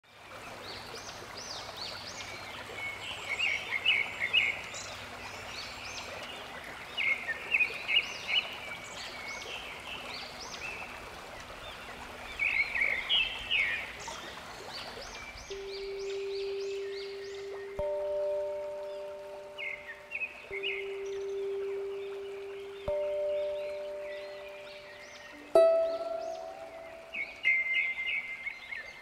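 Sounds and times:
birds chirping: 0:00.3 - 0:29.0
waterfall rushing: 0:15.1 - 0:28.6.

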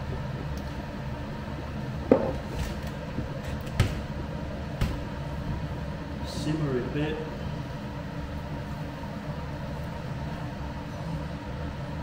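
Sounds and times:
low kitchen hum: 0:00.0 - 0:12.0.

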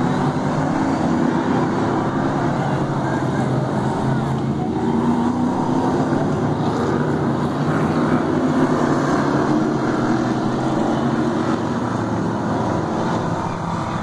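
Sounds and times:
race car engines: 0:00.0 - 0:14.0.

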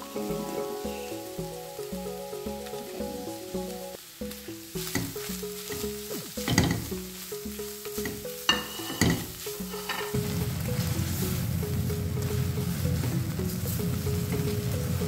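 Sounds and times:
frying sizzle: 0:00.0 - 0:15.0
spatula stirring in a pan: 0:04.3 - 0:15.0.

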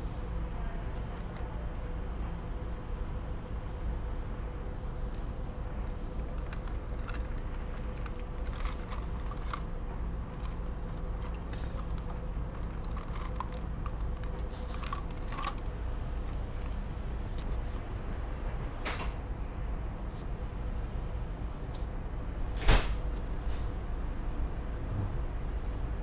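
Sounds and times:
low hum inside rail car: 0:00.0 - 0:26.0
clicks and rattles of small objects: 0:05.1 - 0:15.8.

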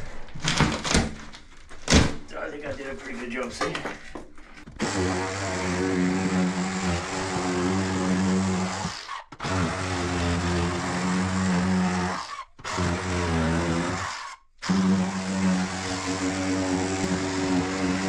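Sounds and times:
power tool motor running: 0:14.7 - 0:18.0.

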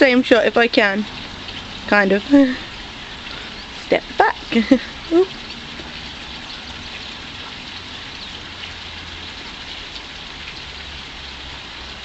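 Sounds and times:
steady outdoor hiss: 0:00.0 - 0:12.0.

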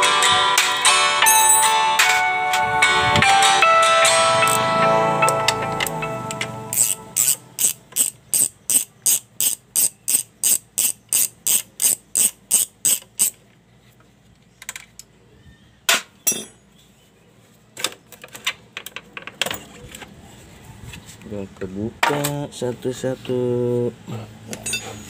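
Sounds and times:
ratchet wrench clicking: 0:04.4 - 0:04.6, 0:06.7 - 0:13.4.

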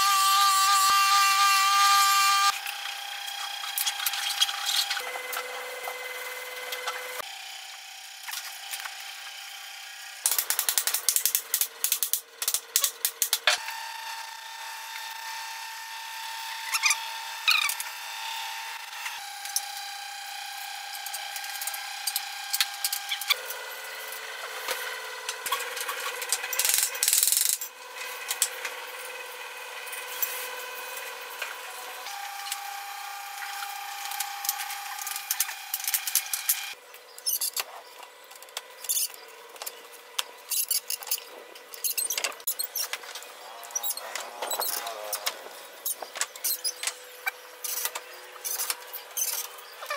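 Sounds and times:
power drill whining: 0:00.0 - 0:05.0.

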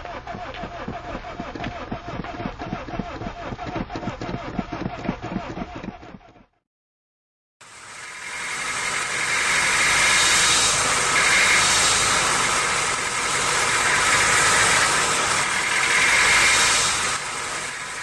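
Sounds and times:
car transmission grinding: 0:00.0 - 0:06.5.

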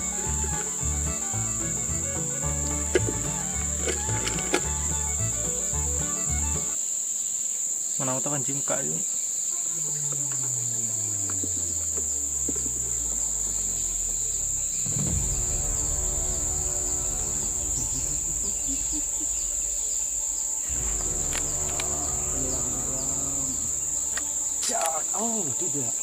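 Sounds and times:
insects buzzing: 0:00.0 - 0:26.0
low droning hum: 0:11.7 - 0:25.6.

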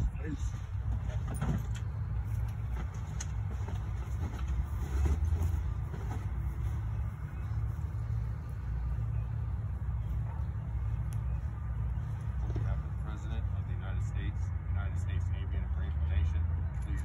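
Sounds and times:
wind rumble on microphone: 0:00.0 - 0:02.2.

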